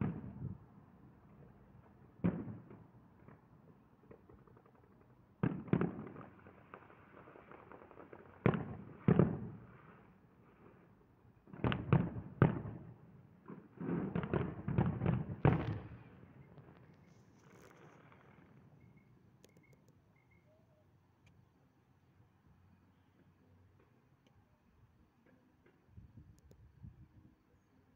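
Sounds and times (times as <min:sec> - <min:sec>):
firework shells booming: 0:13.8 - 0:16.9.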